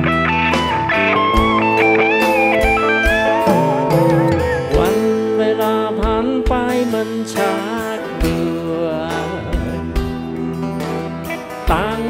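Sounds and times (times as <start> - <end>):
lead melody with bending notes: 0.0 - 12.0
sustained chords: 0.9 - 9.1
drum hits: 1.4 - 5.2.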